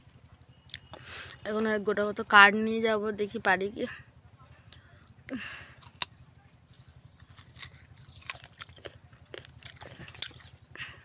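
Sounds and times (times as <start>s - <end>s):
person biting into guava: 5.8s - 6.2s, 7.2s - 10.6s
crisp chewing: 5.8s - 10.7s.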